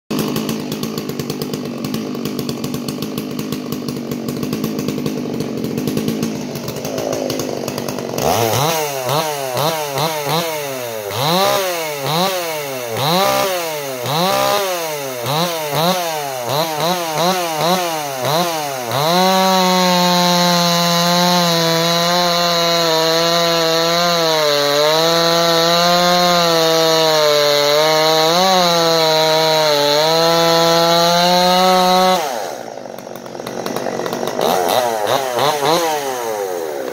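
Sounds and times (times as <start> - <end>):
chainsaw revving and cutting wood: 0.1 - 36.9.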